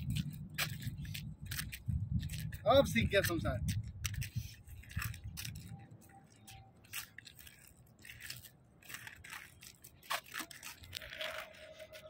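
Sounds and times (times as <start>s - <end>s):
skate wheels scraping on asphalt: 0.0s - 12.0s.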